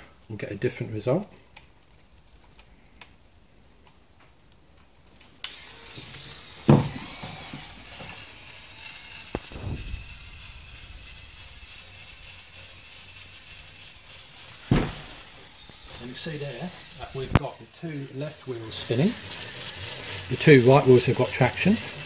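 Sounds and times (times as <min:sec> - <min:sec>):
toy motor whirring: 0:05.4 - 0:22.0
loud thump: 0:06.7 - 0:07.0, 0:14.6 - 0:15.4.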